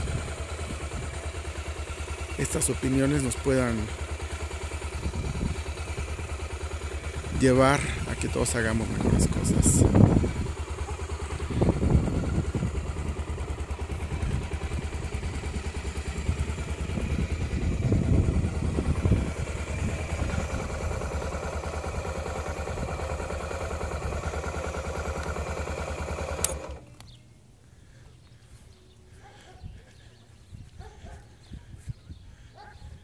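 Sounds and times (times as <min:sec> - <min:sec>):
motorcycle engine idling: 0:00.0 - 0:33.0
engine switch click: 0:25.1 - 0:25.5, 0:26.1 - 0:27.2.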